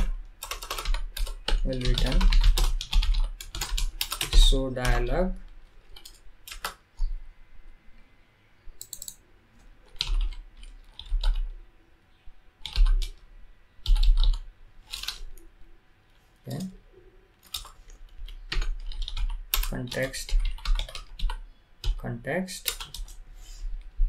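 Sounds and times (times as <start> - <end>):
computer keyboard typing: 0.0 - 7.2, 8.8 - 11.5, 12.6 - 13.2, 13.8 - 15.4, 17.4 - 22.0, 22.6 - 23.2.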